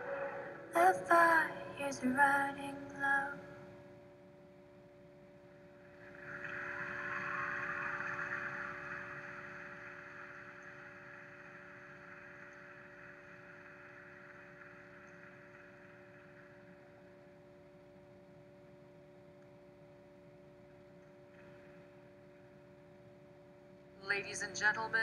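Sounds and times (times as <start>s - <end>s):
steady hum with tones: 0.0s - 25.0s
crowd applauding: 6.0s - 16.8s.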